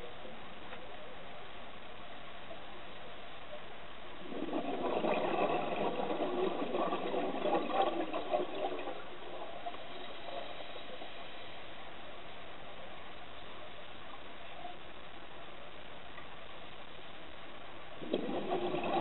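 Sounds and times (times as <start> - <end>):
steady underwater hiss: 0.0 - 19.0
scuba regulator bubbling: 4.2 - 11.6, 18.0 - 19.0.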